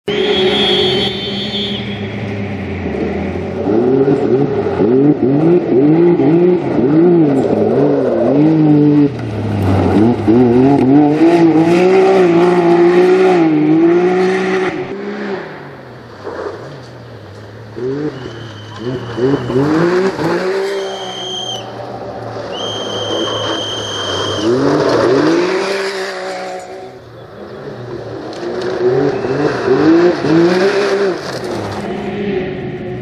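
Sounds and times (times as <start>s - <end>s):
engine revving hard: 9.7s - 15.4s, 17.8s - 21.4s.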